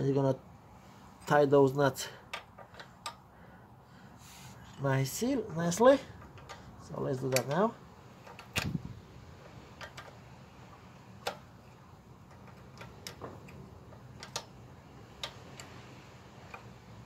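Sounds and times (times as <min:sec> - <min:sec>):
spanner clicking on nuts: 0:02.2 - 0:03.3, 0:08.2 - 0:08.8, 0:09.7 - 0:10.3, 0:11.1 - 0:17.0.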